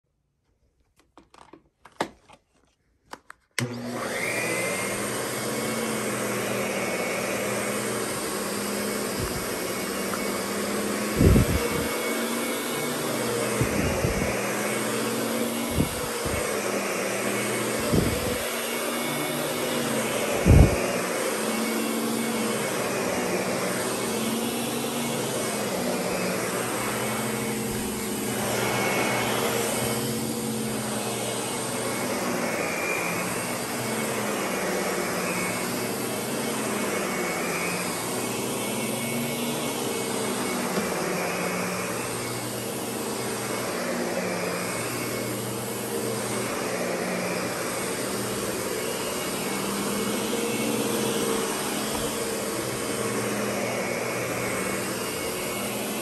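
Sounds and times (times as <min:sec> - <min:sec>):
clicks: 0:00.8 - 0:03.7
vacuum cleaner motor whine: 0:03.6 - 0:56.0.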